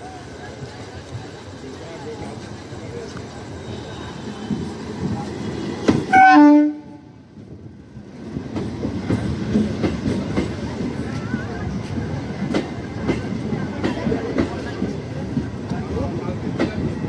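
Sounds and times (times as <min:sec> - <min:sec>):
train wheels clicking over rail joints: 0:04.2 - 0:06.3, 0:07.3 - 0:17.0
train horn blast: 0:06.1 - 0:07.1.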